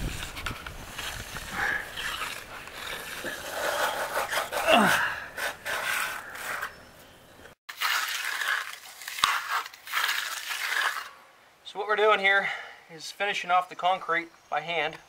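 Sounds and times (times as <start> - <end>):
hand tool scraping wet concrete: 0.0 - 6.8, 7.7 - 11.2
concrete groover rasping: 0.8 - 6.7, 7.7 - 11.1.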